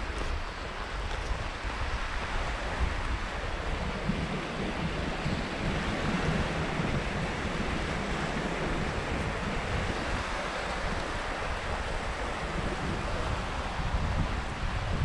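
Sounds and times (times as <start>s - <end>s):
surf washing onto shore: 0.0s - 15.0s
wind rumbling on microphone: 0.0s - 15.0s.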